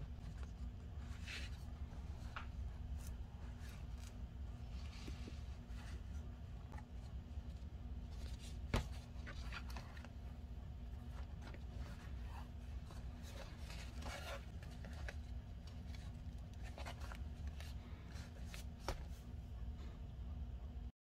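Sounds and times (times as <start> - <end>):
steady low hum: 0.0 - 20.9
paper pages rustling: 0.2 - 10.2, 10.9 - 19.3.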